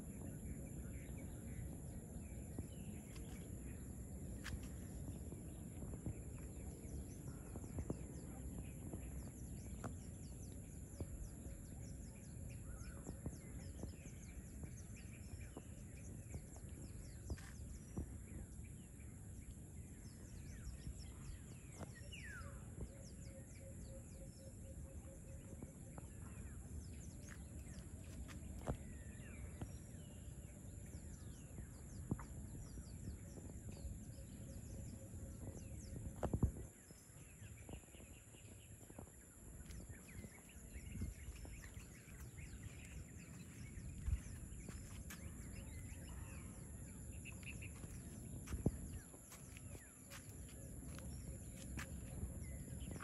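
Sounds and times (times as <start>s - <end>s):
bird calls and chirps: 0.0s - 53.0s.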